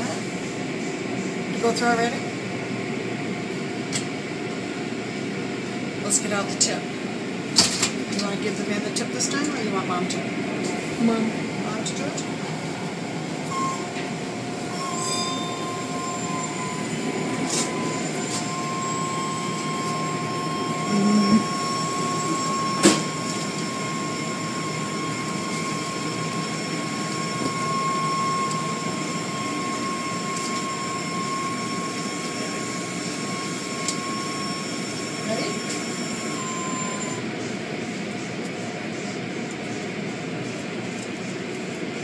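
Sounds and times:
car wash machinery rushing: 4.4 - 37.4
thin high whine: 11.8 - 37.4.

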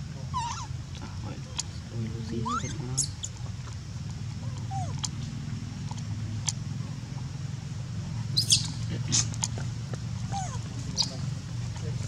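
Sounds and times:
steady low hum: 0.0 - 12.0
faint squeaks and clicks: 1.4 - 3.8, 10.3 - 12.0
sharp high chirp: 8.4 - 8.8.

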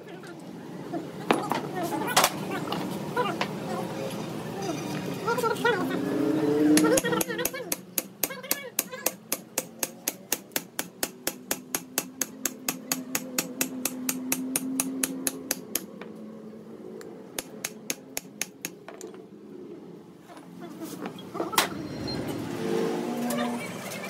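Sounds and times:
hammer tapping on metal: 6.7 - 16.1, 17.4 - 19.1.

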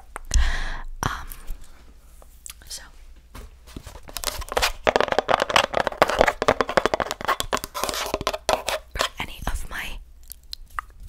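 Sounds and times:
fingers scratching microphone grille: 4.2 - 9.2.

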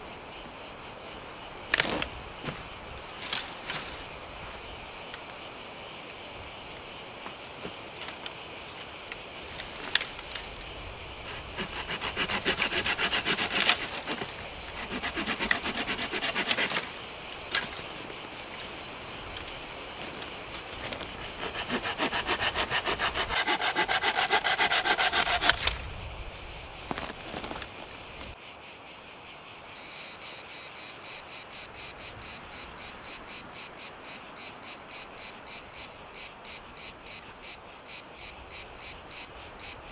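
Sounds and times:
high-pitched insect chorus: 0.0 - 39.9
hand saw cutting branch: 11.2 - 17.9, 20.5 - 25.8.

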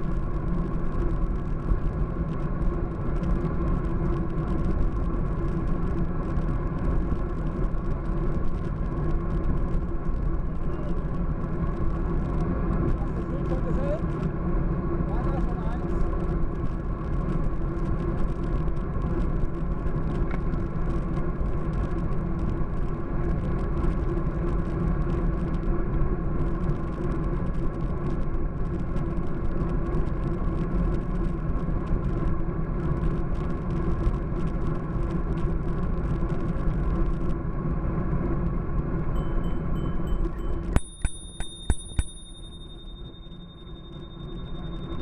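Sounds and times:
bike road rumble: 0.0 - 45.0
constant low hum: 0.0 - 45.0.

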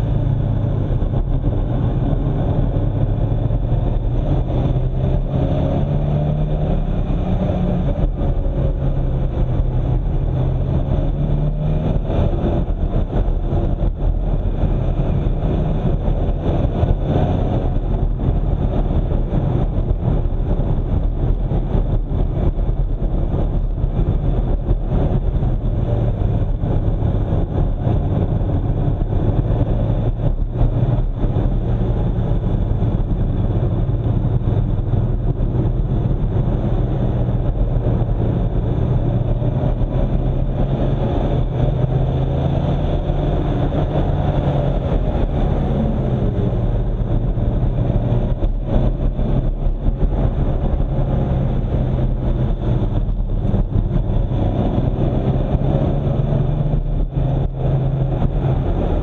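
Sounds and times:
car engine running: 0.0 - 59.0
road noise: 0.0 - 59.0.

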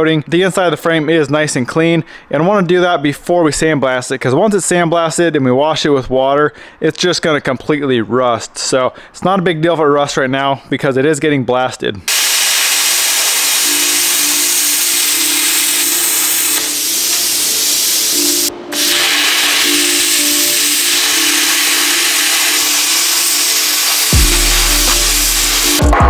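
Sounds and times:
plasma cutter hissing: 12.1 - 25.8.

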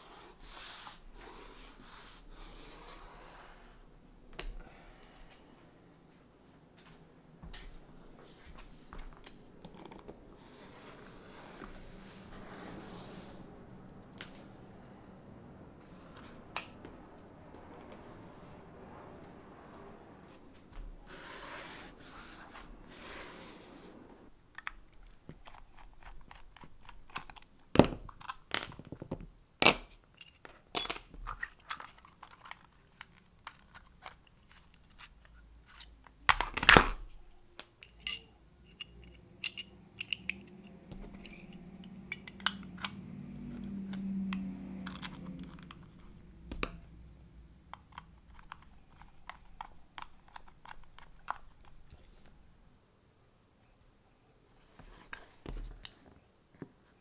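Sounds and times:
low hum: 7.2 - 24.4, 38.6 - 48.6
scraping hiss: 21.0 - 24.3
utility knife clicks and metal clinks: 37.8 - 40.5.

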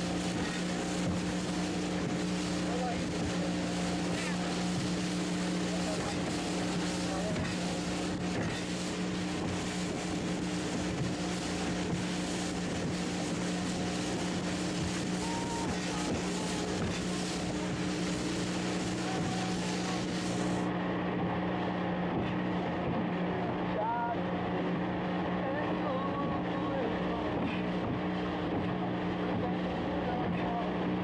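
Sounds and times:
motorboat engine running: 0.0 - 31.0
water and wind rushing: 0.0 - 31.0.

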